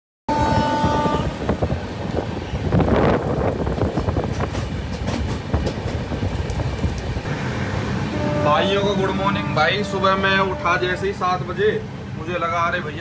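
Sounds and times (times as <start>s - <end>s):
train rushing rumble: 0.3s - 13.0s
wheels clacking over rail joints: 2.6s - 7.2s.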